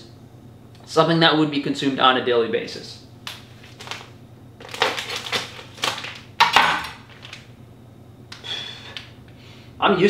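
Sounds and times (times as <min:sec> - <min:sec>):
plastic bag rustling: 0:03.4 - 0:07.5.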